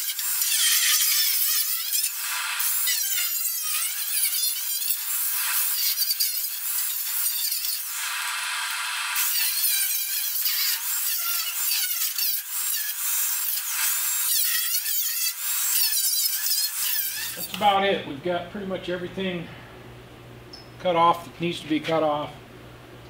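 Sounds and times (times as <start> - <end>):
grinder cutting sheet metal: 0.0 - 17.7.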